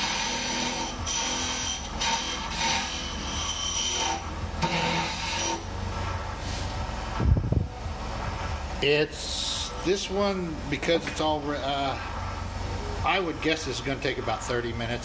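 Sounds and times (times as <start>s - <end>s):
turning tool cutting wood: 0.0s - 5.7s
lathe motor hum: 0.0s - 8.8s.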